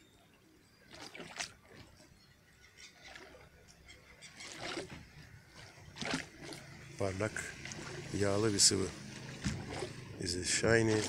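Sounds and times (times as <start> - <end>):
small waves lapping against pier: 0.7 - 11.0
soft water splashes: 0.7 - 11.0
low water hush: 4.4 - 11.0.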